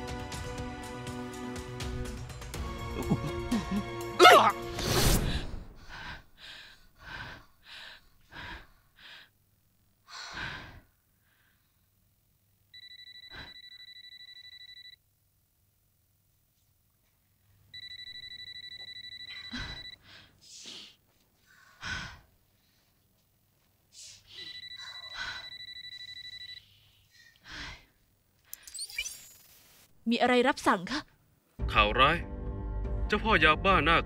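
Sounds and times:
telephone electronic trilling ring: 12.8s - 15.0s, 17.8s - 20.0s, 24.4s - 26.6s.

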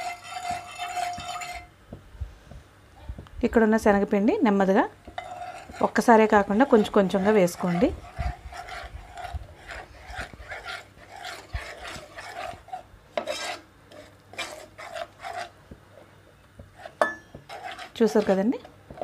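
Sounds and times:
spoon scraping a pan: 0.0s - 1.7s, 5.1s - 15.6s, 16.6s - 19.0s
steel bowl tapping a pan: 0.0s - 1.7s, 17.0s - 17.6s.

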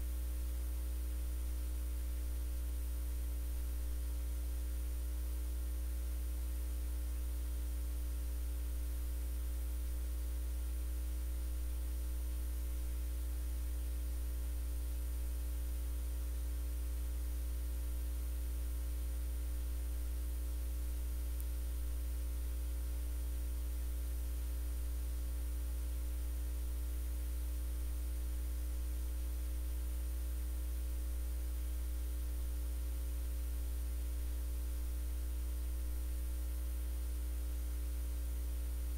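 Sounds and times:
low electrical hum: 0.0s - 38.9s
light hiss: 18.9s - 28.8s.

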